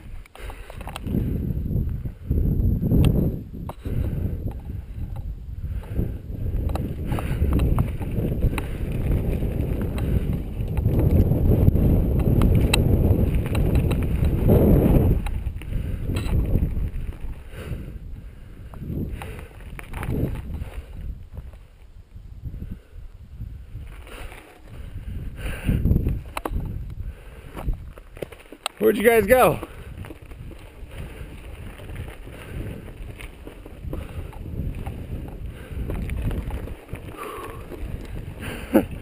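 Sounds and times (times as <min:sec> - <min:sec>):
bike tyres rolling over dirt: 0:00.0 - 0:39.0
wind rumble on microphone: 0:00.0 - 0:39.0
sharp clicks and rattles: 0:06.6 - 0:17.4, 0:26.0 - 0:39.0.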